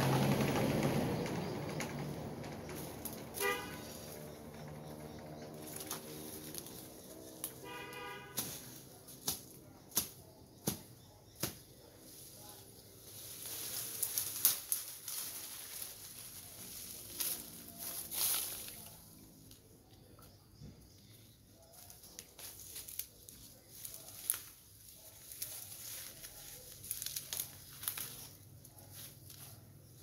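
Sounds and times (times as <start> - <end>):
woody stems cracking: 0.0 - 7.7, 8.4 - 11.6, 13.0 - 19.6, 21.8 - 29.6
leaves and branches rustling: 0.0 - 19.8, 21.0 - 30.0
branches snapping: 5.6 - 11.6, 13.2 - 19.6, 21.9 - 28.4.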